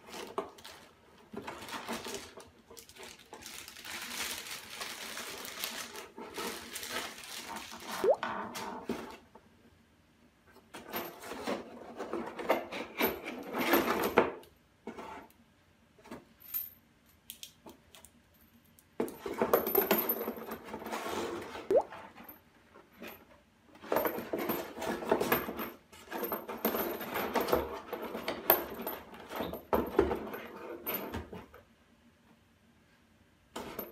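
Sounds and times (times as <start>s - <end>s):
rustling packaging: 0.0s - 8.0s.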